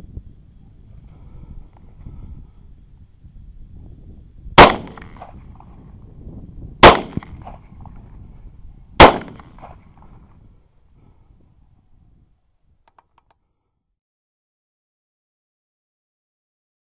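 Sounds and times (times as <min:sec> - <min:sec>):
rifle shots with echo: 0:04.6 - 0:05.4, 0:06.8 - 0:07.6, 0:09.0 - 0:09.8.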